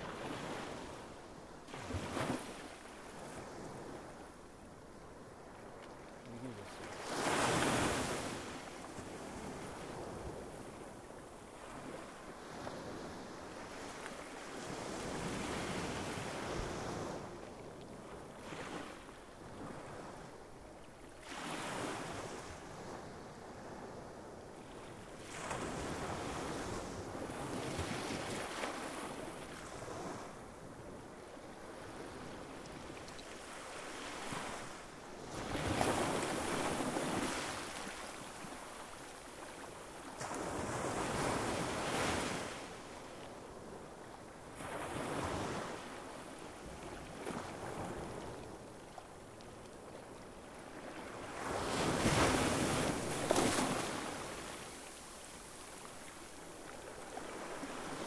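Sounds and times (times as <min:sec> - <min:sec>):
sea waves breaking on beach: 0:01.7 - 0:04.2, 0:06.2 - 0:10.6, 0:31.6 - 0:43.0, 0:50.1 - 0:58.0.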